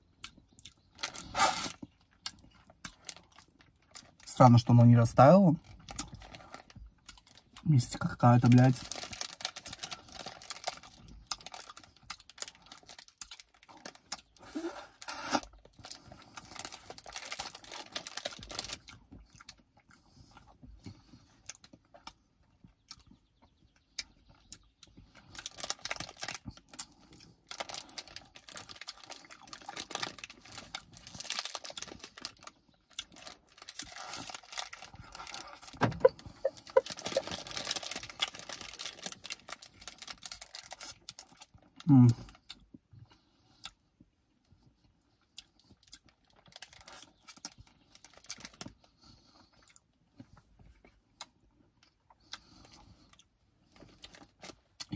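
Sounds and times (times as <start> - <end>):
licking and eating sounds: 5.6 - 54.9
foil wrapper crinkling: 8.0 - 19.0, 25.2 - 42.4, 46.2 - 48.8, 53.7 - 54.9.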